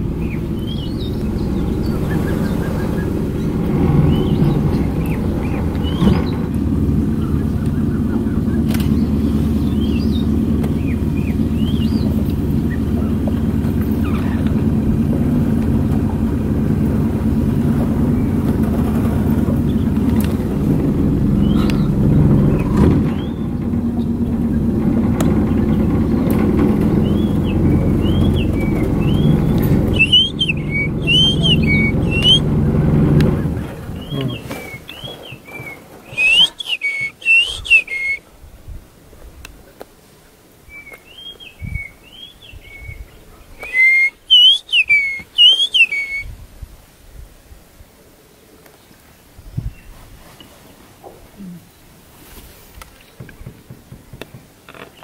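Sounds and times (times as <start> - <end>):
vehicle engine idling: 0.0 - 38.2
bird whistling: 0.2 - 6.4, 7.2 - 12.9, 21.4 - 21.9, 27.0 - 32.5, 34.0 - 38.2, 43.6 - 46.3.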